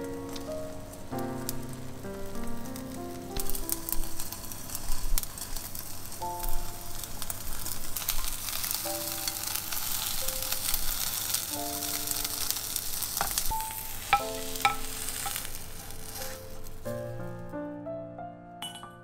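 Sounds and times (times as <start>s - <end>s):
omelette sizzling in a pan: 0.0s - 17.5s
soft background music: 0.0s - 19.0s
spatula scraping and tapping pan: 13.2s - 16.7s.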